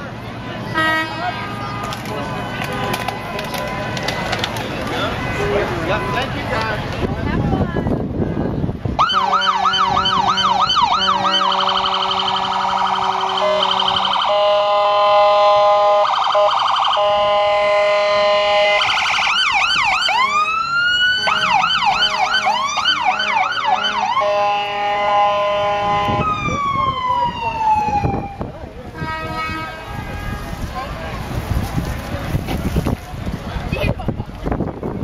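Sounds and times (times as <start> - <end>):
electronic siren: 9.0 - 28.5.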